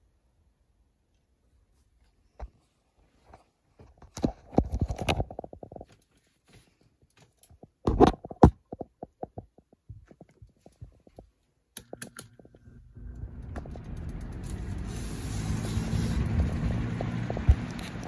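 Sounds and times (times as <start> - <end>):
box fan motor humming: 12.6 - 18.0.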